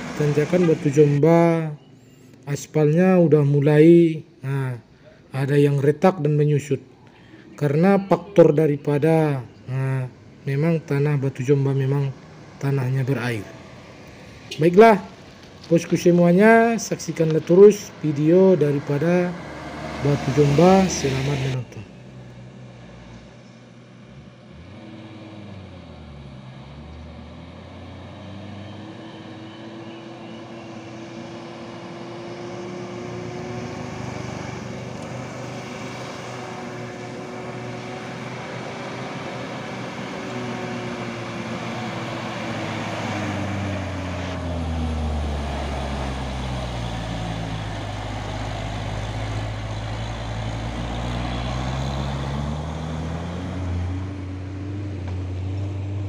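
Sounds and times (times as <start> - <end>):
truck engine labouring uphill: 0.0 - 56.0.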